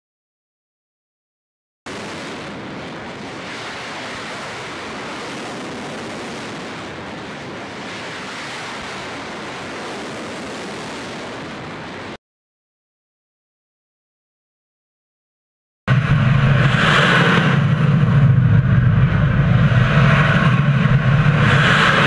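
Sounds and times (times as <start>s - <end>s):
rocket boosters roaring: 1.9s - 12.2s, 15.9s - 22.0s.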